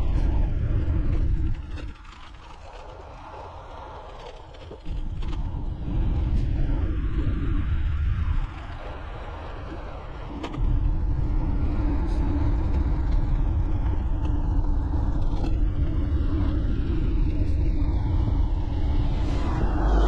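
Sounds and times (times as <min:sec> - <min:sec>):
wind rushing over microphone: 0:00.0 - 0:20.0
road noise: 0:17.0 - 0:20.0.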